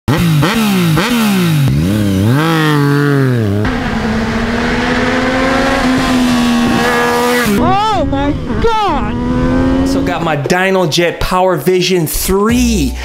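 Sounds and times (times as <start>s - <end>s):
motorcycle engine revving: 0.1s - 10.5s
wind noise: 3.7s - 10.5s.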